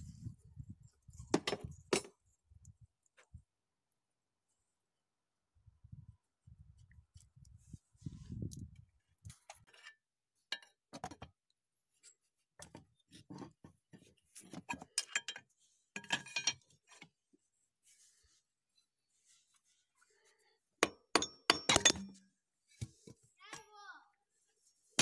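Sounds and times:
metal tools clinking and clattering: 14.3s - 16.7s.

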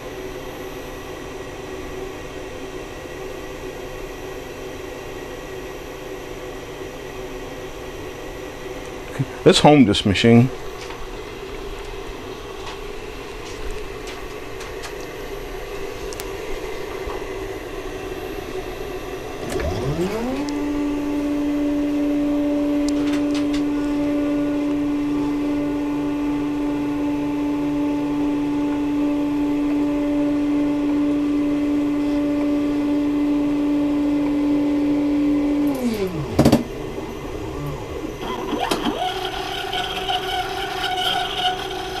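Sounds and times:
motor whine: 10.6s - 42.0s
stepper motor hum: 17.3s - 42.0s.

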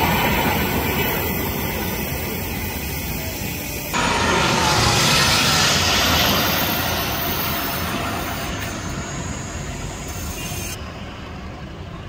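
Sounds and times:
jet passing overhead: 0.0s - 12.0s.

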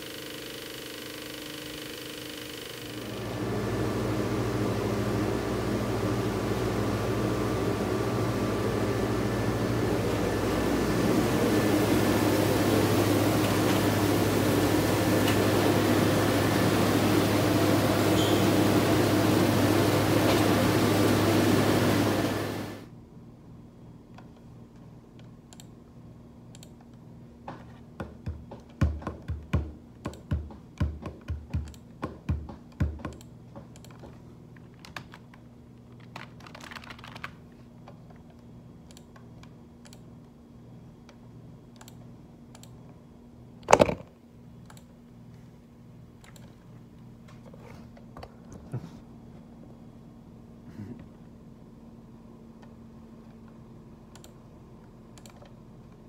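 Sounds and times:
hands drumming on desk: 27.5s - 33.8s
keyboard clicks: 32.7s - 37.4s, 54.1s - 54.4s, 55.1s - 55.6s.

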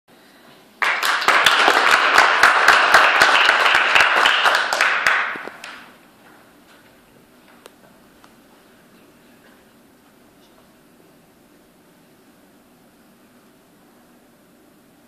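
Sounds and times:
audience applauding: 0.8s - 6.0s.

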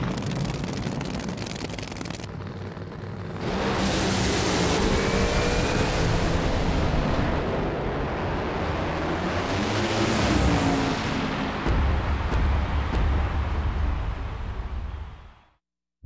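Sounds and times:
drag racing engines at full throttle: 0.0s - 12.2s.

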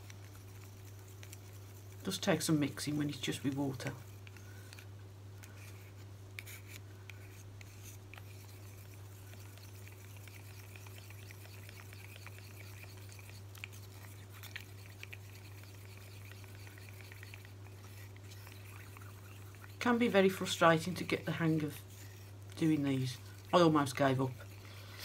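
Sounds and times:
steady low hum: 0.0s - 25.0s
stick scraping plastic cup: 3.6s - 24.6s.

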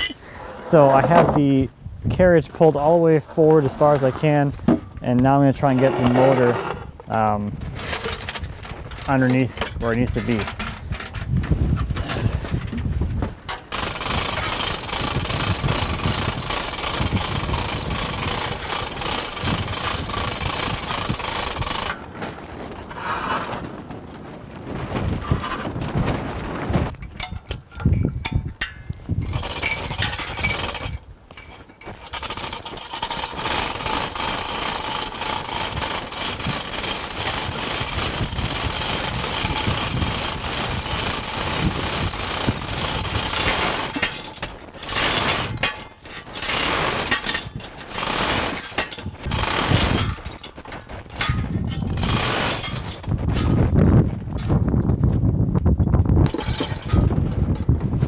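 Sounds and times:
chain rattling through hoist: 7.8s - 12.7s, 13.5s - 22.3s, 27.0s - 53.8s, 56.2s - 57.8s.

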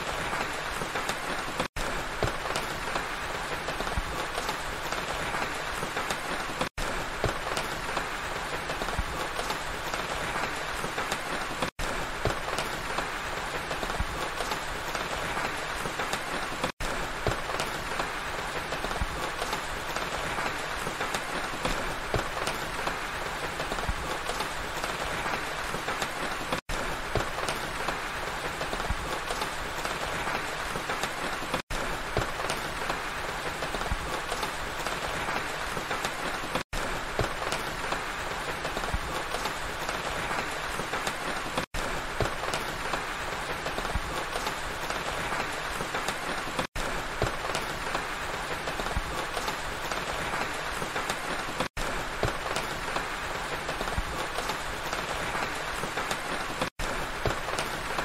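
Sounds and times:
rain falling on forest: 0.0s - 58.0s.

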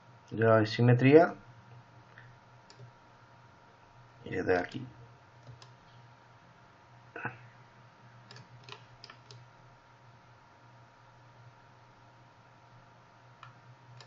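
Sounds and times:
faint low hum: 0.0s - 14.0s
computer mouse clicks: 2.1s - 2.9s, 5.4s - 5.8s, 8.3s - 9.5s.

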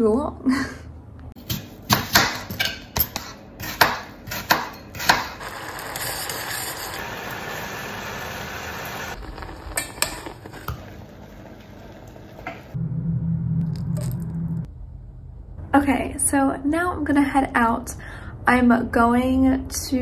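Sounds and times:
steady hiss from saucepan: 7.0s - 12.5s.

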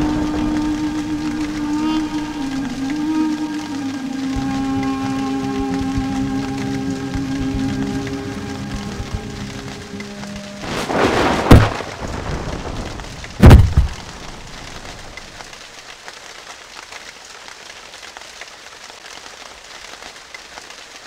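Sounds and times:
faint steady hiss: 0.0s - 21.0s
swelling noise with sharp crack: 6.6s - 15.5s
deep heavy boom: 10.9s - 14.1s.

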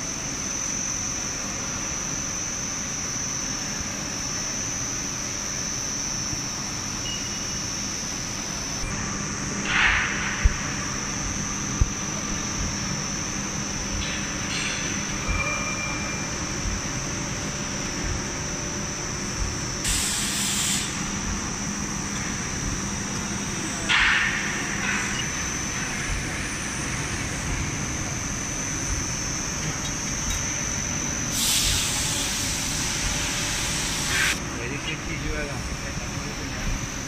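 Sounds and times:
high whine: 0.0s - 37.0s
machinery running: 8.2s - 36.7s
hiss bursts: 19.8s - 21.0s, 31.3s - 34.4s.

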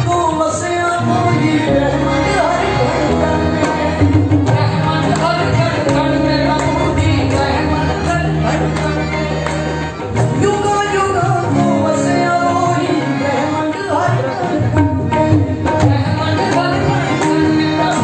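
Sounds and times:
instrumental accompaniment: 0.0s - 18.0s
percussion beat: 3.2s - 11.8s.

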